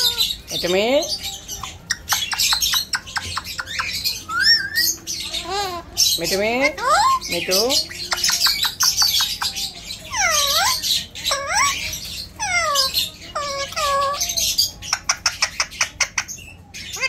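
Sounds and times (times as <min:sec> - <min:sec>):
parakeet whistled calls: 0:00.0 - 0:15.9
parakeet clicking: 0:01.6 - 0:04.6, 0:06.6 - 0:10.6.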